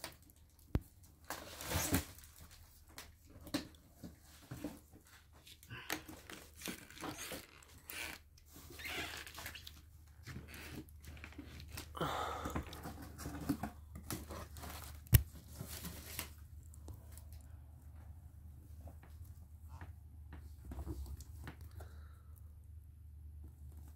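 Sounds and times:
cardboard box rustling and scraping: 0:12.9 - 0:16.4.

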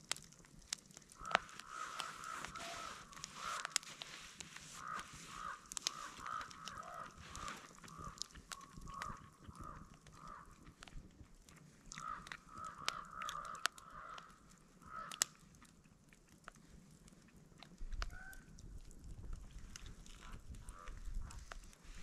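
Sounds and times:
log fire crackling: 0:00.0 - 0:22.0
distant geese honking: 0:01.2 - 0:10.5.

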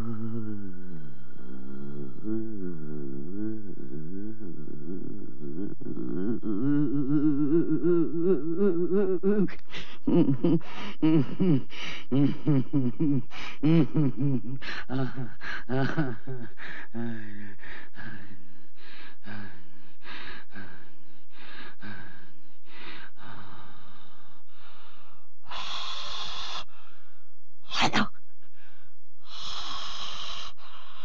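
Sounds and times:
woman rasping breaths: 0:05.7 - 0:11.0, 0:14.5 - 0:31.0
woman grunting: 0:27.7 - 0:28.1
harsh hissing exhale: 0:29.3 - 0:30.6.

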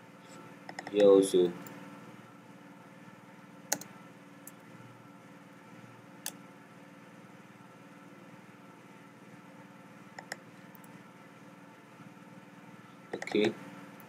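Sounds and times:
faint steady hum: 0:00.0 - 0:14.0
keyboard and mouse clicks: 0:00.7 - 0:01.8, 0:10.2 - 0:10.9, 0:13.2 - 0:13.5.

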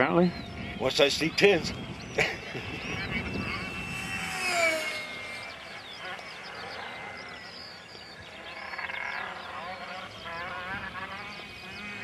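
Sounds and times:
model plane motor whining: 0:01.4 - 0:07.7.

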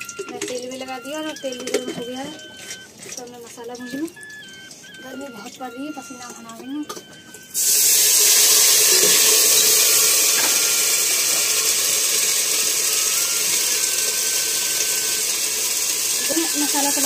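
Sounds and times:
spice paste sizzling in oil: 0:07.6 - 0:17.0.

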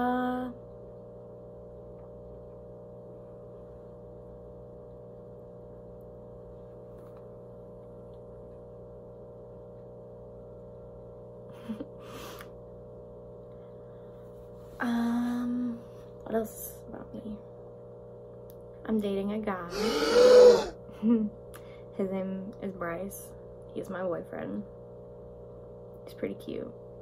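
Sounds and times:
steady multi-tone hum: 0:00.0 - 0:27.0
person humming mm: 0:19.7 - 0:20.8.

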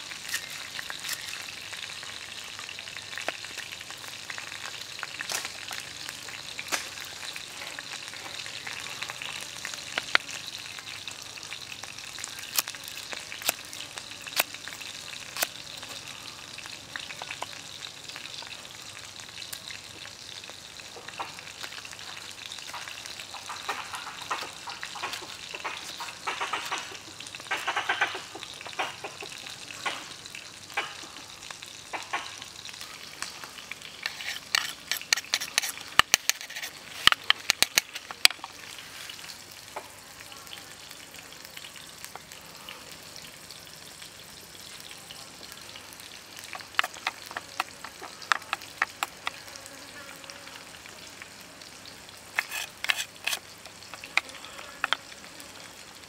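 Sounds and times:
knife tip stirring sauce: 0:34.0 - 0:38.2, 0:52.4 - 0:55.0
seasoning scooped into bowl: 0:34.0 - 0:39.2, 0:46.4 - 0:49.6, 0:52.2 - 0:55.0.

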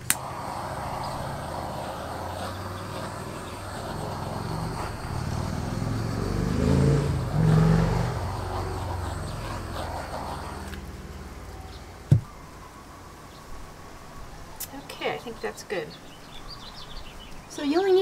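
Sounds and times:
torch flame hissing: 0:00.0 - 0:11.5.

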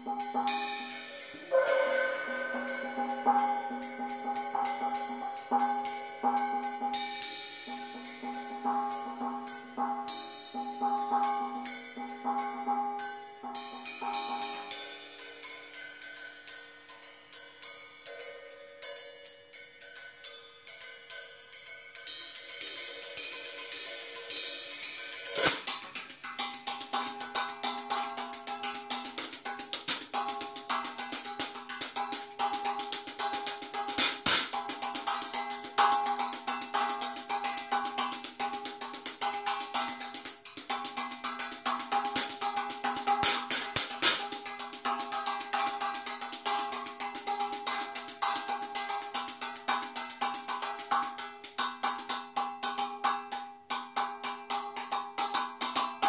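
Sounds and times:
gong ringing: 0:00.0 - 0:07.0
drums and cymbals: 0:00.0 - 0:56.0.

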